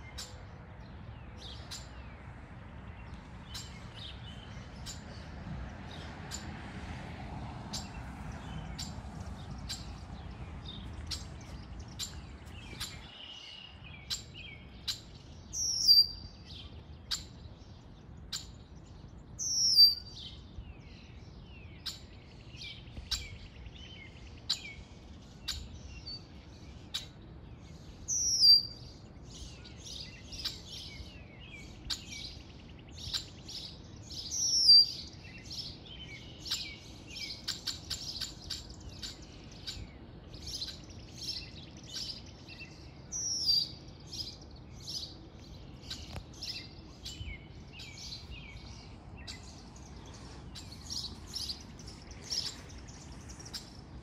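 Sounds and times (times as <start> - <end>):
songbirds chirping in chorus: 0.0 - 54.0.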